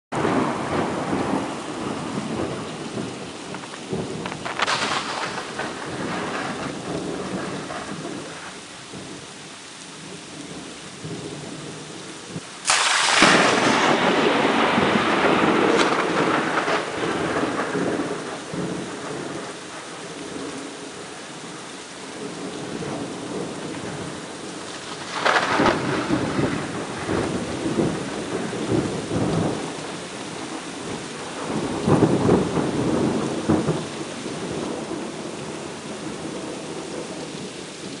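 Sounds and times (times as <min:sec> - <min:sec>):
steady rain: 0:00.1 - 0:38.0
thunder: 0:00.2 - 0:09.2, 0:10.5 - 0:21.2, 0:22.2 - 0:38.0.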